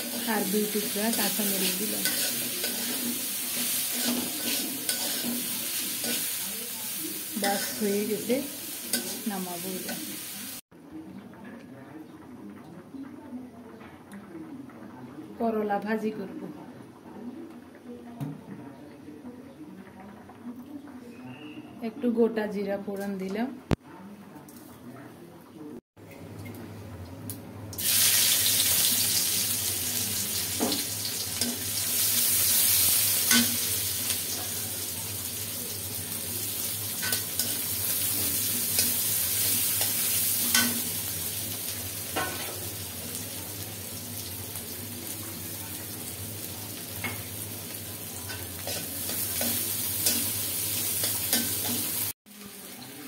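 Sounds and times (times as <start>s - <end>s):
seeds sizzling in hot oil: 0.0s - 10.6s, 27.8s - 53.0s.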